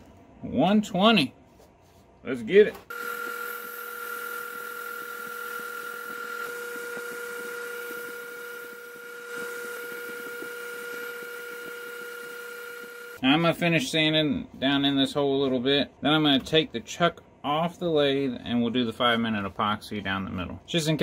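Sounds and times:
drill whine: 2.9s - 13.2s.

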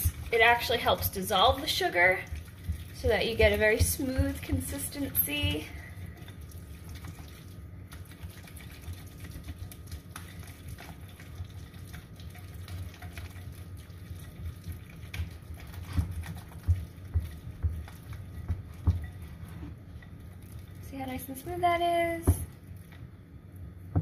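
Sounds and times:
whisk tapping glass bowl: 2.3s - 5.7s, 15.0s - 19.3s.

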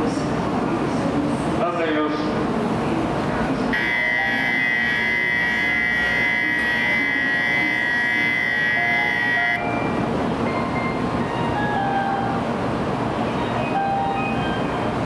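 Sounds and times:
train rushing hum: 0.0s - 15.0s
electronic bell ringing: 3.8s - 9.9s.

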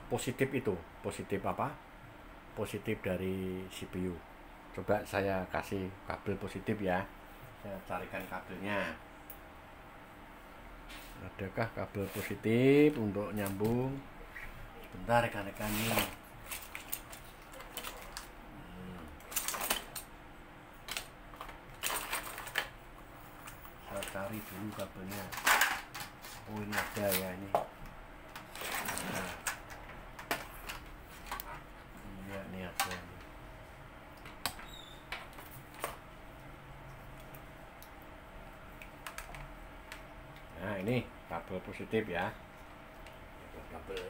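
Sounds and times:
rummaging through wires and parts: 15.2s - 18.4s, 19.0s - 20.1s, 20.8s - 27.5s, 28.3s - 33.3s.

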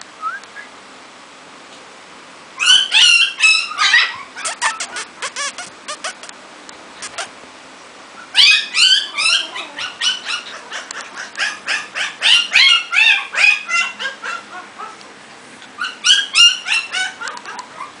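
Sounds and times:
puppy yipping: 2.6s - 6.4s, 7.0s - 7.4s, 8.2s - 15.0s, 15.8s - 18.0s.

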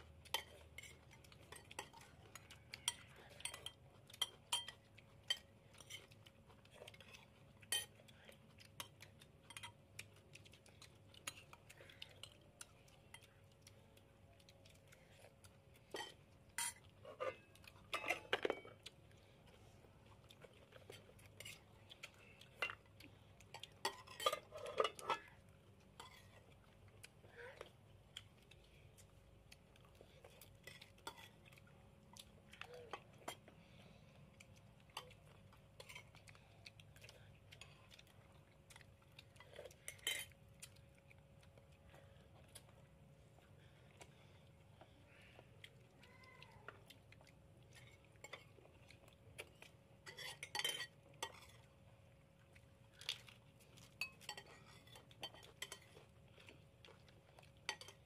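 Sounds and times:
spoons clinking on ceramic plates: 0.3s - 6.1s, 15.9s - 18.8s, 23.5s - 25.3s, 39.8s - 40.3s, 50.0s - 51.6s, 54.0s - 55.9s, 57.7s - 58.0s.

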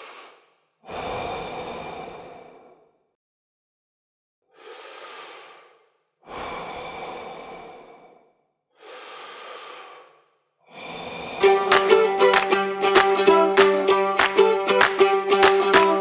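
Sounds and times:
deep human breathing: 0.0s - 3.2s, 4.5s - 11.5s.

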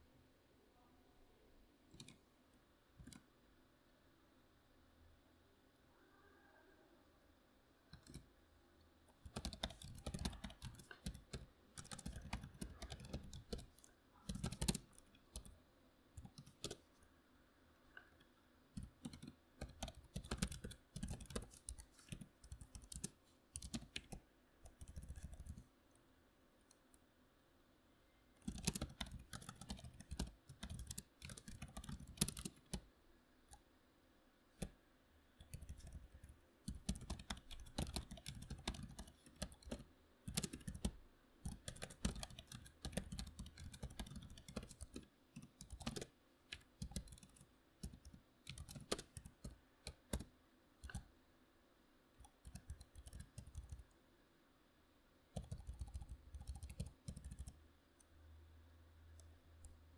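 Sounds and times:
typing on computer keyboard: 1.9s - 2.2s, 7.9s - 8.3s, 9.2s - 15.6s, 16.2s - 16.9s, 18.0s - 25.6s, 28.4s - 32.9s, 34.6s - 34.8s, 35.4s - 51.1s, 52.2s - 53.9s, 55.4s - 58.1s.

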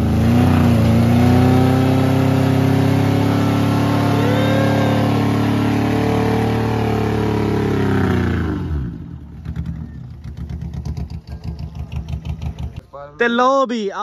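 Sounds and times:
car engine revving: 0.0s - 12.8s.

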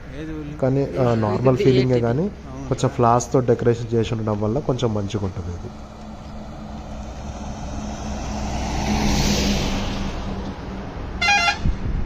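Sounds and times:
vehicle passing by: 4.8s - 12.0s
short horn toot: 11.2s - 11.8s.

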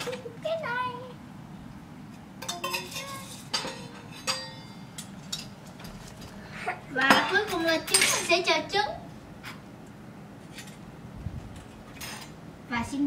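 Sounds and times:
metal toy pots clinking: 2.4s - 5.5s.

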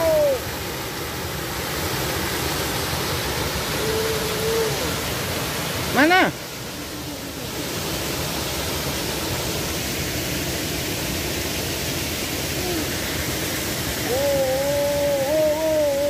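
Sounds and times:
person calling out wavering: 0.0s - 0.4s, 3.7s - 5.0s, 12.5s - 13.0s, 14.0s - 16.0s
small waterfall pouring into pool: 0.0s - 16.0s.

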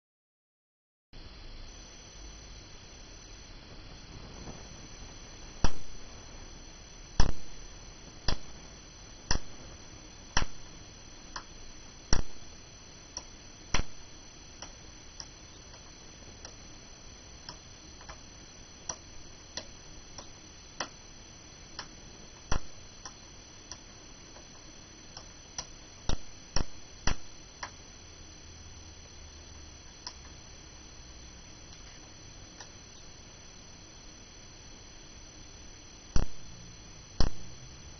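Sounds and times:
switch clicks: 7.2s - 7.4s, 9.3s - 9.6s, 37.2s - 37.5s.

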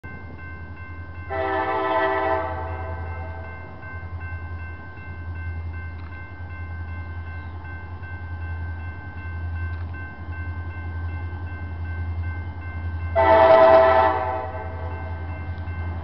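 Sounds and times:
distant train air horn: 1.3s - 3.1s, 13.2s - 14.9s.

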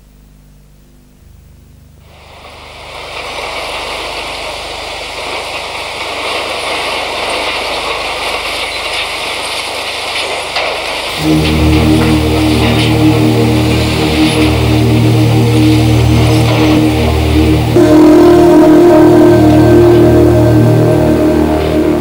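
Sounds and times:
faint low hum: 0.0s - 5.4s
steady rushing noise: 2.0s - 22.0s.

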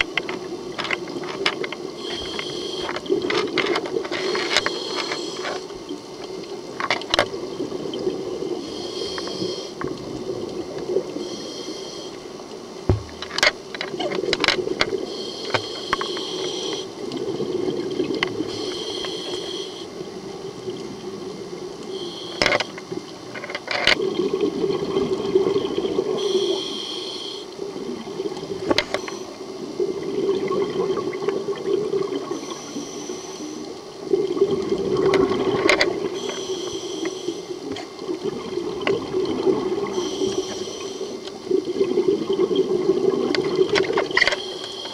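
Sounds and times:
exhaled air bubbling: 16.4s - 22.0s, 24.0s - 26.6s, 27.6s - 32.8s, 33.7s - 44.4s.

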